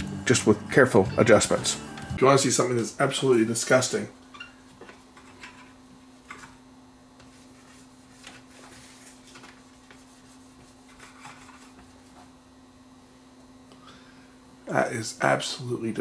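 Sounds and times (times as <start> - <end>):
low electrical hum: 0.0 - 16.0
hands rubbing equipment: 7.2 - 12.4.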